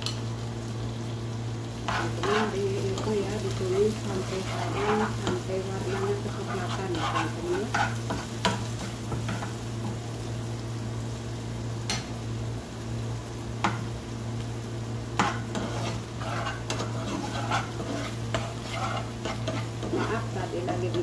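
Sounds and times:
oil sizzling: 0.0 - 21.0
metal spoon scraping a pan: 1.9 - 9.6, 15.2 - 21.0.

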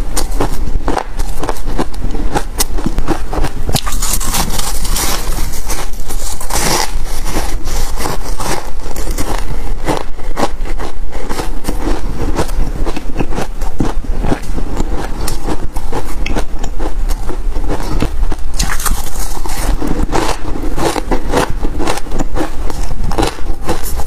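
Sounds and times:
chewing crunchy ice: 0.0 - 24.0.

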